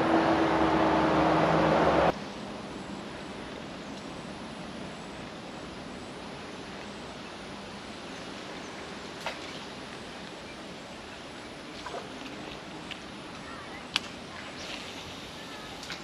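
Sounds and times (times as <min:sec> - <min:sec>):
low hum: 0:00.0 - 0:06.3
faint hiss: 0:12.6 - 0:16.0.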